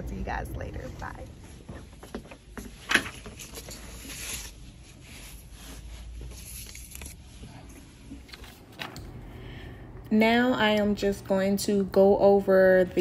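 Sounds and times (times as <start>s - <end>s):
low steady hum: 0.0s - 2.1s, 2.9s - 13.0s
paper rustling: 2.5s - 9.0s.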